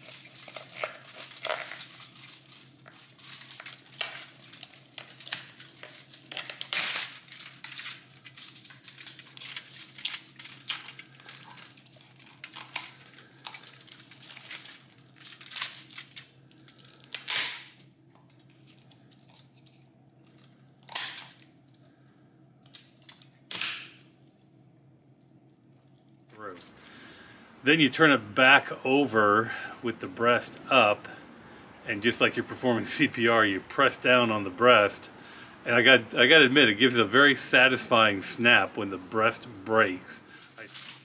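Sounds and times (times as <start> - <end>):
shears crunching through bones: 0.0 - 2.4.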